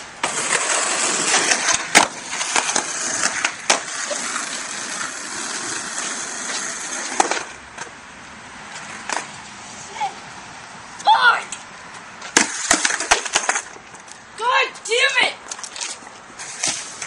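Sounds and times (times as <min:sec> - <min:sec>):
skateboard wheels rolling on pavement: 0:00.0 - 0:17.0
skateboard clacks: 0:00.2 - 0:07.9, 0:12.2 - 0:13.8.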